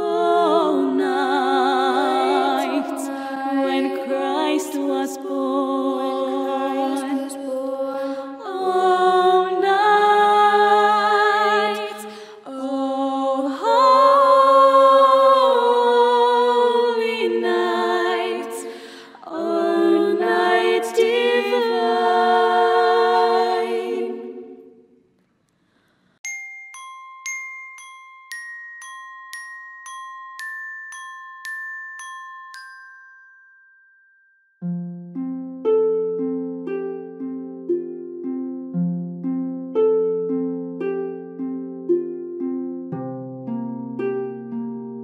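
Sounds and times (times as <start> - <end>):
voices singing in harmony: 0.0 - 24.8
glockenspiel single notes: 26.2 - 44.8.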